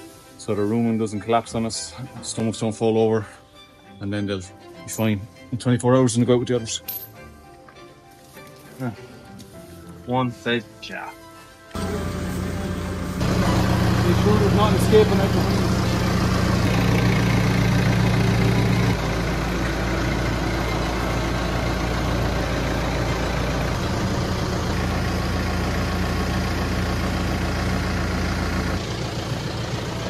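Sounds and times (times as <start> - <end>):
tractor engine idling: 11.8 - 30.0.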